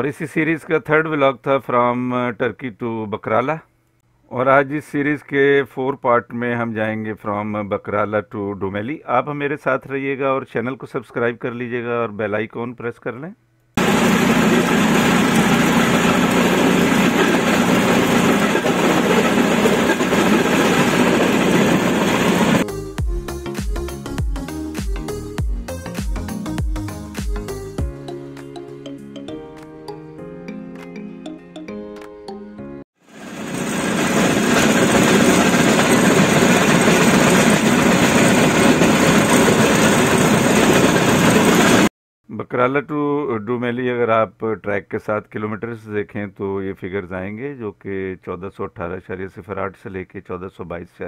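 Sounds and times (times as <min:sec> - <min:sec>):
rail trolley engine running: 0:13.8 - 0:22.6, 0:33.2 - 0:41.9.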